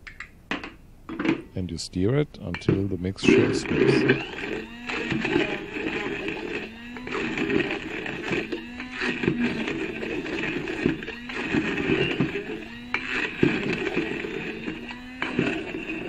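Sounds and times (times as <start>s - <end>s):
immersion blender in glass jar: 2.5s - 16.0s.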